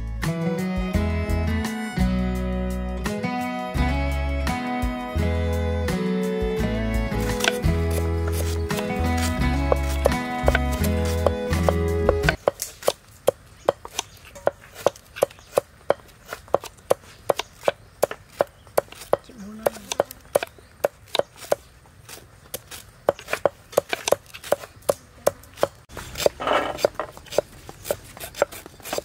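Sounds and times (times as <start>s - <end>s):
knife chopping on wooden board: 7.1s - 29.0s.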